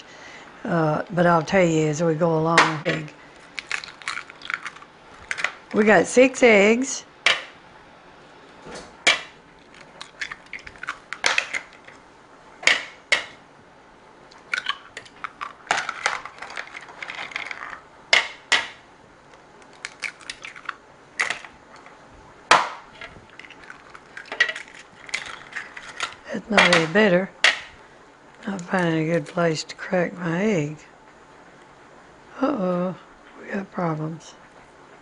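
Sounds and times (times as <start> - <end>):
eggs cracking on glass bowl: 2.6 - 5.8, 9.0 - 12.0, 12.6 - 13.4, 14.3 - 21.9, 22.5 - 27.8.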